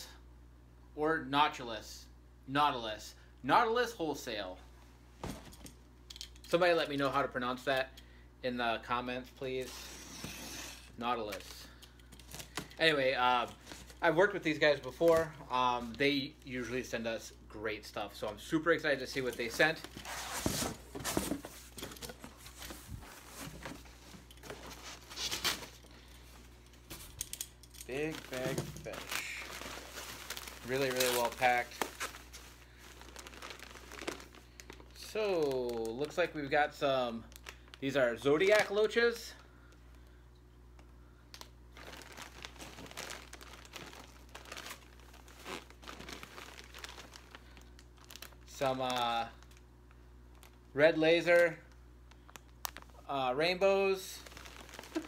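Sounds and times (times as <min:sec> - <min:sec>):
plastic bags crinkling: 0:09.6 - 0:17.0, 0:17.9 - 0:39.3, 0:41.3 - 0:53.0, 0:53.8 - 0:55.0
cardboard and foam rustling: 0:18.2 - 0:27.2, 0:27.9 - 0:35.2, 0:41.8 - 0:47.4, 0:53.9 - 0:55.0.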